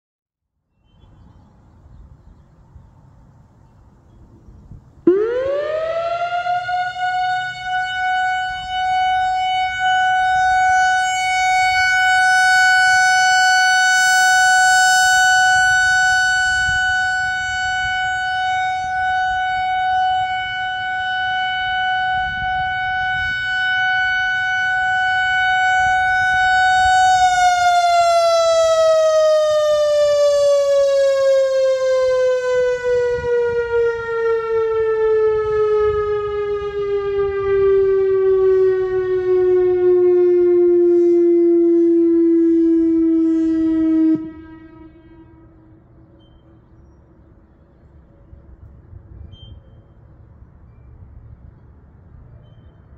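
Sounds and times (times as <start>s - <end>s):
electronic siren tone: 5.1s - 46.6s.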